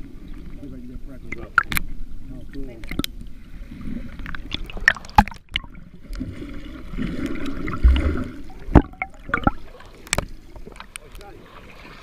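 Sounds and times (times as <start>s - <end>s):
muffled water sloshing: 0.0s - 12.0s.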